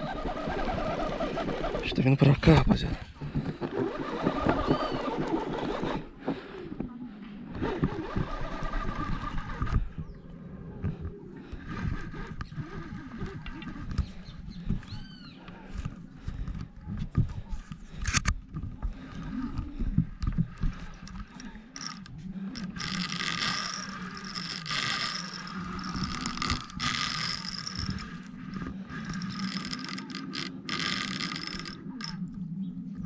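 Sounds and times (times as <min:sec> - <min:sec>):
fishing reel whirring and ratcheting: 0:07.6 - 0:09.9, 0:20.9 - 0:32.4.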